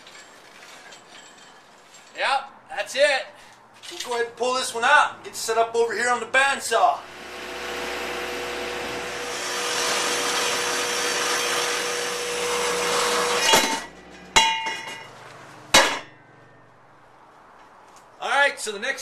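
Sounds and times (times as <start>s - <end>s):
metal-cutting bandsaw running: 7.1s - 14.4s
metallic clangs of steel tube: 13.4s - 15.1s.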